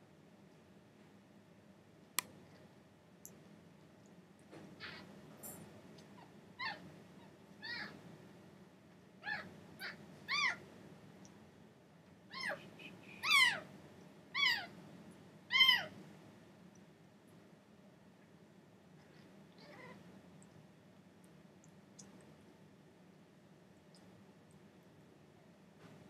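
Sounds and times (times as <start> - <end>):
kitten mewing: 12.3 - 13.6.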